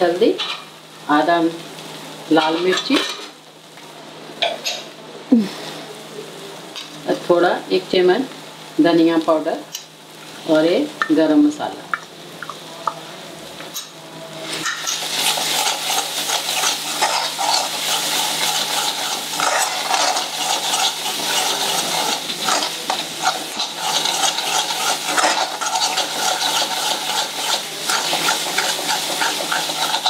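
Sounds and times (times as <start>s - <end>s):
paste sizzling in oil: 5.6s - 30.0s
metal spoon scraping pan: 14.5s - 30.0s.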